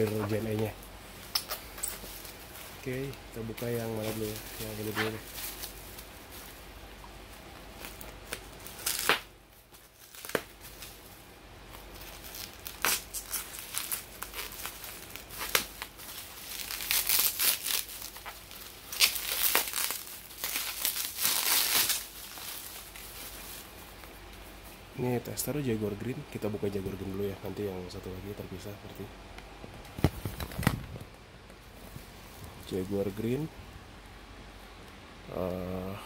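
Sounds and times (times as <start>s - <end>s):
bubble wrap crinkling: 0.0s - 28.6s.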